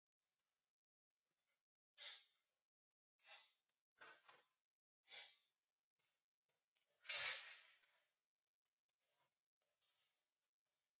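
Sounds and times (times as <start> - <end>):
soft breath-like puffs: 1.3 - 2.6, 3.2 - 3.7, 5.0 - 5.6.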